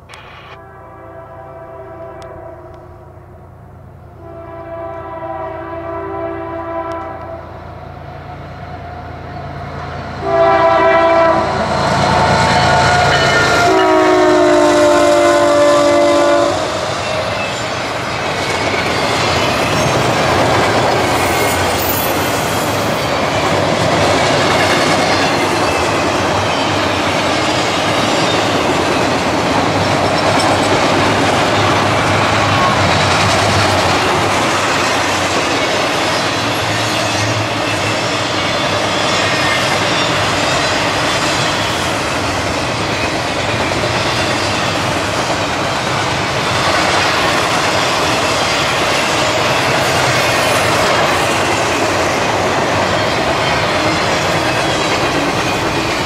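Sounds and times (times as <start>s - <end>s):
freight train rumbling by: 0.0s - 56.0s
locomotive air horn blasts: 0.1s - 3.0s, 4.2s - 7.6s, 10.2s - 11.6s, 12.4s - 16.8s.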